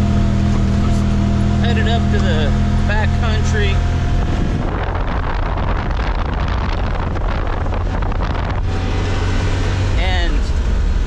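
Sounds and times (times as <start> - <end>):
vehicle engine running: 0.0 - 11.0
wind rushing over microphone: 2.7 - 11.0.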